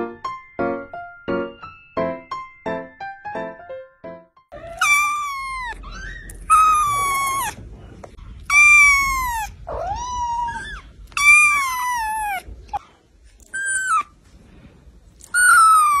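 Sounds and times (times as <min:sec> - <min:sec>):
kitten meowing: 0:04.6 - 0:07.6, 0:08.5 - 0:12.5.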